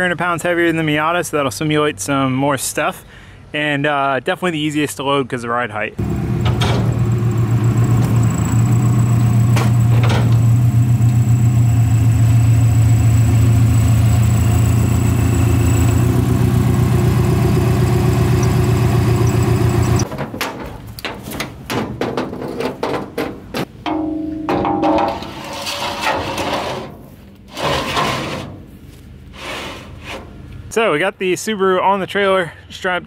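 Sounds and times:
car engine running at low speed: 0:06.0 - 0:20.1.

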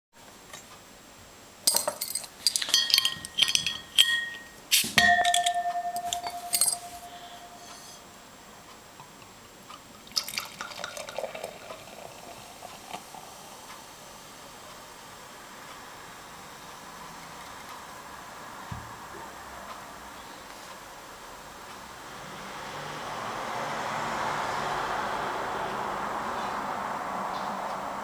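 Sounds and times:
metal clattering onto table: 0:01.7 - 0:07.2
beer pouring into glass: 0:10.0 - 0:13.4.

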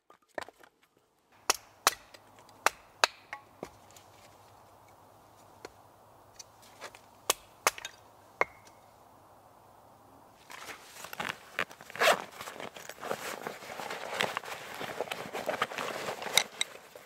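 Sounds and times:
backpack rustling: 0:10.4 - 0:17.0.

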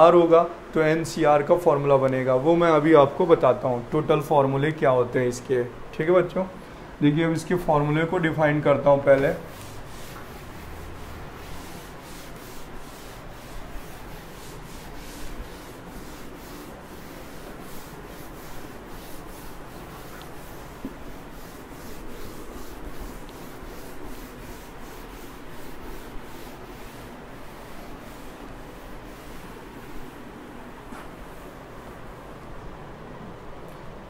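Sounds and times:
cloth duster wiping chalkboard: 0:07.3 - 0:32.3.

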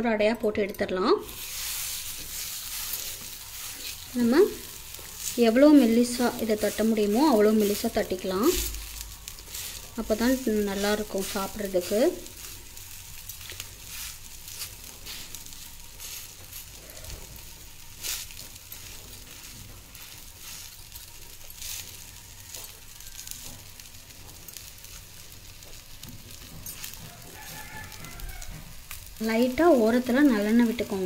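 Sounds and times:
dough sizzling on a griddle: 0:00.6 - 0:31.0
small crackles: 0:01.1 - 0:31.0
fingers patting dough: 0:18.0 - 0:29.2.

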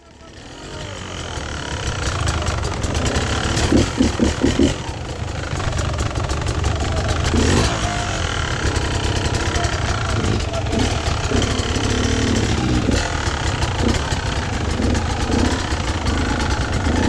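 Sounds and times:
motorcycle engine under throttle: 0:00.0 - 0:17.0
motorcycle knocks and rattles: 0:01.1 - 0:17.0.

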